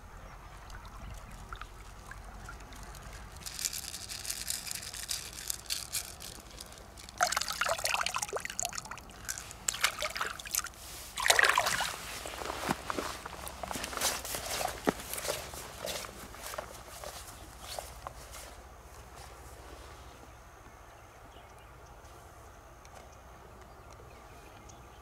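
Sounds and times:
river water trickling: 0:00.0 - 0:18.2
splashing and scuffling: 0:00.5 - 0:18.4
small splashes and drips: 0:00.6 - 0:03.4, 0:06.4 - 0:12.1.

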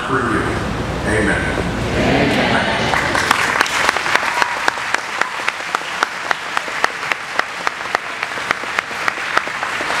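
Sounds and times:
audience applauding: 0:02.8 - 0:10.0
steady close clapping: 0:02.9 - 0:10.0.

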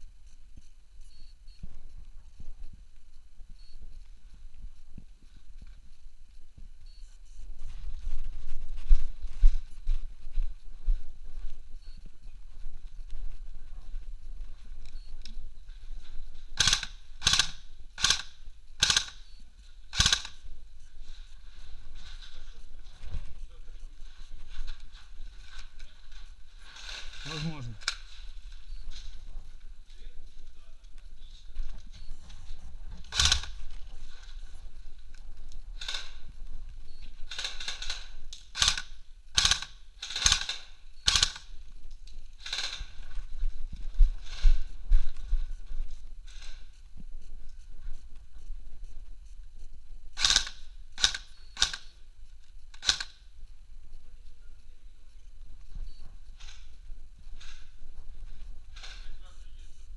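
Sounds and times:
airsoft gun shots: 0:16.6 - 0:19.2, 0:19.9 - 0:20.4, 0:37.3 - 0:41.4.

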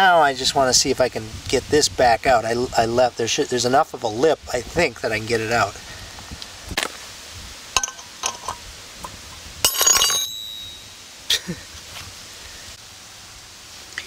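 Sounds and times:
steel tools clinking on metal: 0:07.8 - 0:08.6, 0:09.6 - 0:11.0
brief metallic ring: 0:09.7 - 0:11.0.

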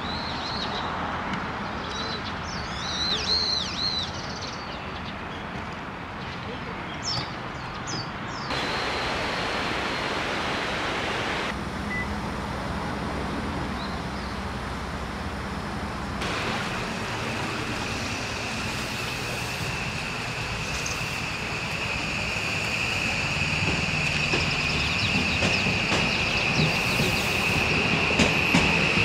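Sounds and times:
train high whine: 0:08.5 - 0:29.0
outdoor rushing noise: 0:12.4 - 0:29.0.

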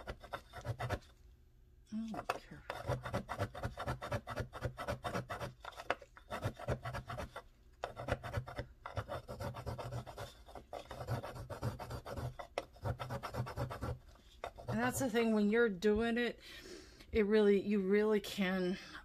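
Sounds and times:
pastel scraping on metal sharpener: 0:00.0 - 0:01.1, 0:02.1 - 0:15.1.

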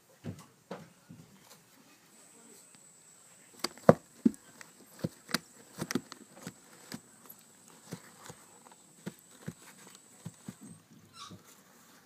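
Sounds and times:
chicks scratching on paper towels: 0:03.6 - 0:12.0.

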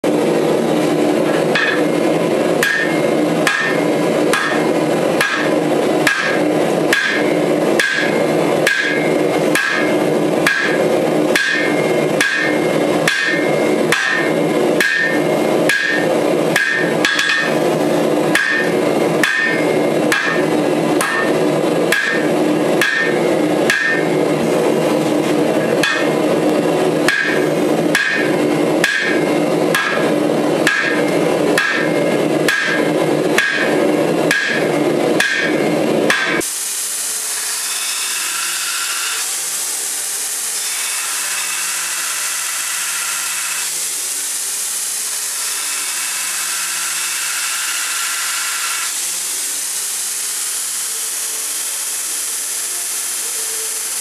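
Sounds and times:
hammer blows on anvil: 0:00.1 - 0:36.6.

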